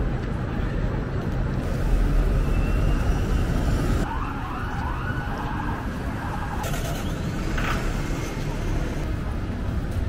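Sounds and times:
low traffic rumble: 0.0s - 10.0s
emergency vehicle siren wailing: 2.3s - 7.0s.

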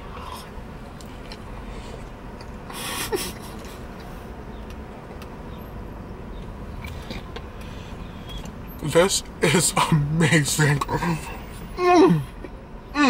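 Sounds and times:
man chewing food: 0.0s - 5.3s, 6.8s - 8.6s
faint steady hum: 0.0s - 13.0s.

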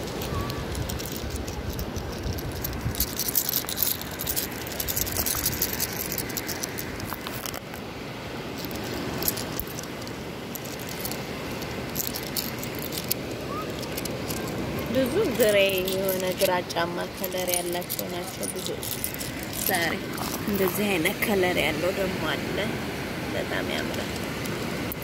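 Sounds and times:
seashells clicking and rattling: 0.0s - 7.8s, 8.5s - 21.0s, 23.9s - 25.0s
wind: 0.0s - 25.0s.

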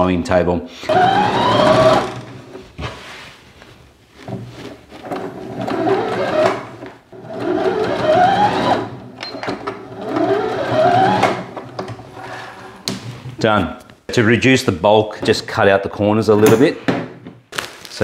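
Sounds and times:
sewing machine motor whine: 0.9s - 2.2s, 5.6s - 6.6s, 7.2s - 9.0s, 9.9s - 11.4s.

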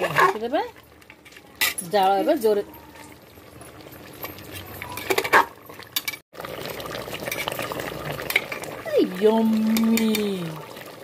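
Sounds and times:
curry bubbling: 0.0s - 11.0s
metal spoon scraping pot: 4.2s - 6.2s.

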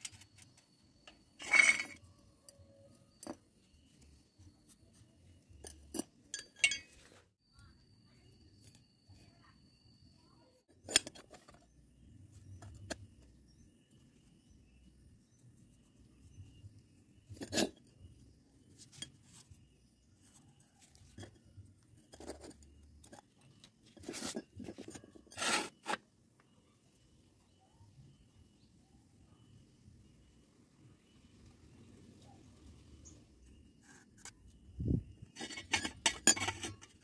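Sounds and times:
steel pipes knocking together: 5.6s - 7.0s, 35.4s - 37.0s.

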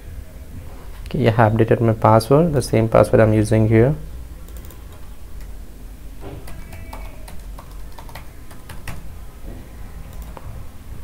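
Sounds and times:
keyboard typing clicks: 4.4s - 5.5s, 6.3s - 9.1s, 10.0s - 10.5s.

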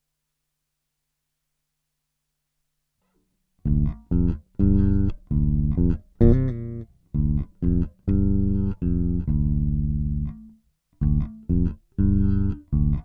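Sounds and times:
electric bass riff with octave effect: 3.6s - 13.0s.

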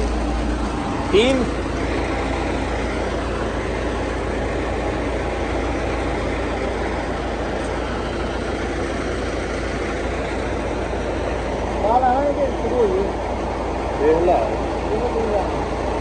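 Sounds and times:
truck engine droning: 0.0s - 16.0s.

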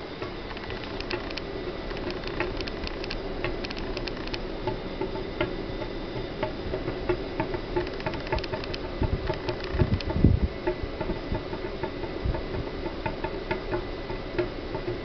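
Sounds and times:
steady hum: 0.0s - 15.0s
air conditioner popping and clicking: 0.2s - 15.0s.

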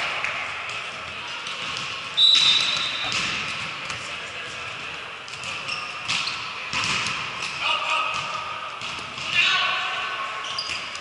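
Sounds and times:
players' voices: 0.0s - 11.0s
balls being hit: 0.2s - 4.7s, 5.3s - 9.5s
referee's whistle: 2.2s - 3.2s.

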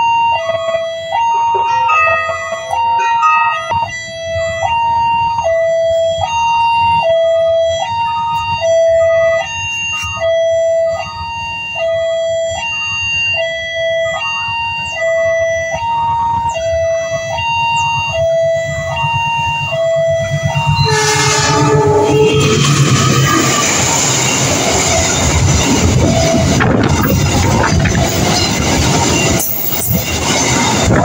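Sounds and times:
two-tone level crossing alarm: 0.0s - 31.0s
low rumble: 20.1s - 29.0s.

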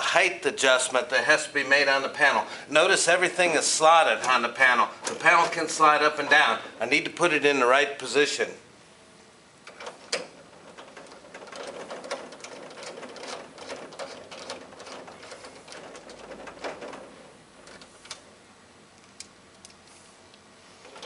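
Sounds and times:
metal bolt clicking and rattling: 9.6s - 18.2s.

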